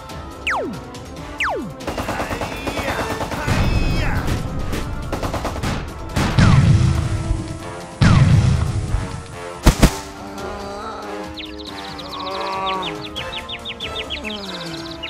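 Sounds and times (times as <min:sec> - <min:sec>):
background music: 0:00.0 - 0:15.0
sharp bangs: 0:00.5 - 0:10.2.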